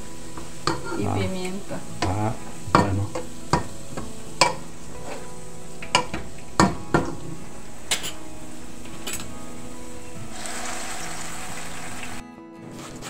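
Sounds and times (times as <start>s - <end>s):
frying sizzle: 0.0s - 12.2s
utensils knocking against pans: 0.3s - 9.4s.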